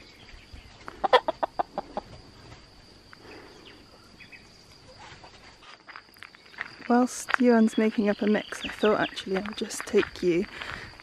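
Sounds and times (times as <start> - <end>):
chickens clucking: 0.6 - 2.6.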